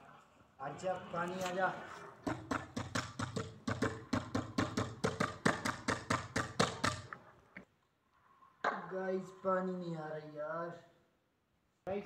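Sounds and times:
hollow knocking on pipe: 2.2s - 7.1s.

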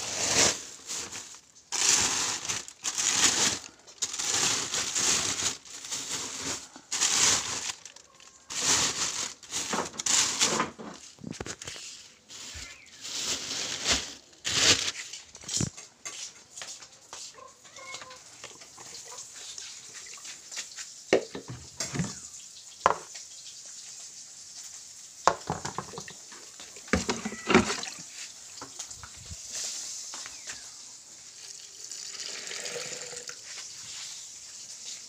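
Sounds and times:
plastic bags rustling: 0.0s - 16.1s, 25.4s - 31.8s
plastic containers knocking together: 21.2s - 22.2s, 25.3s - 26.2s, 26.8s - 28.0s.

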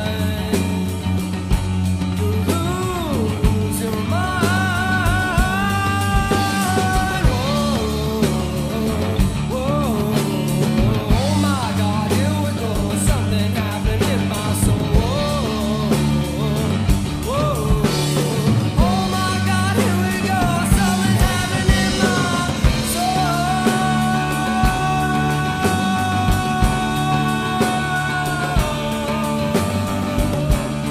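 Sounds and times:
rock band playing: 0.0s - 30.9s
person singing: 2.1s - 30.9s.

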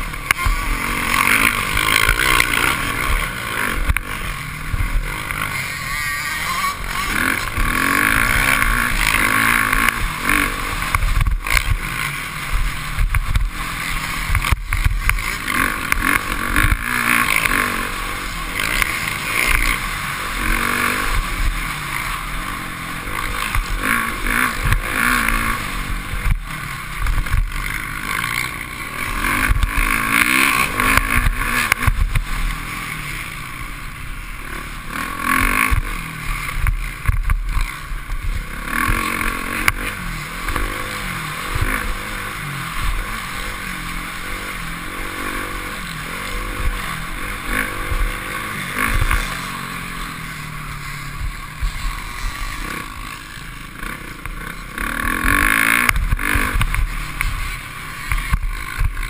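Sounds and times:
motocross bike engine revving: 0.0s - 59.0s.

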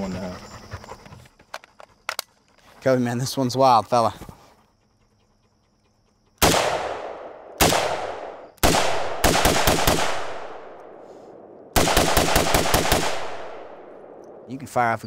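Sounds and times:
rifle shots: 6.4s - 14.5s.

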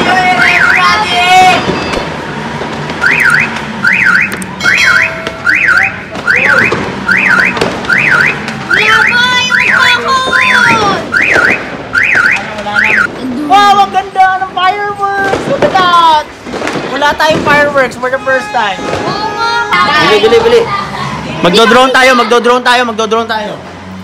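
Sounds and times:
car alarm siren wailing: 0.0s - 2.2s, 3.0s - 13.1s.

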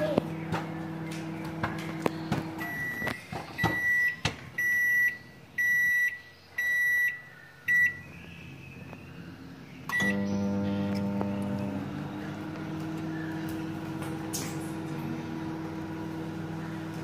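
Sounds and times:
microwave oven humming: 0.0s - 8.0s, 9.4s - 17.0s
microwave high beep: 2.6s - 8.0s, 9.9s - 10.9s.

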